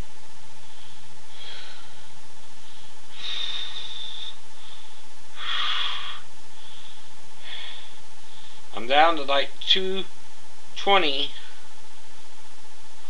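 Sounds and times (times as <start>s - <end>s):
steady hiss: 0.0s - 13.0s
man breathing heavily: 0.5s - 8.7s.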